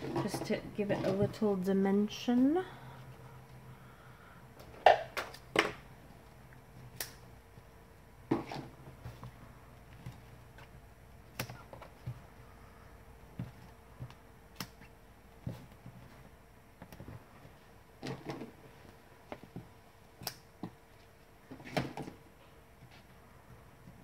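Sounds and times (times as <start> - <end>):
scissors snipping tape: 7.0 - 7.2, 14.5 - 14.9, 20.2 - 20.4.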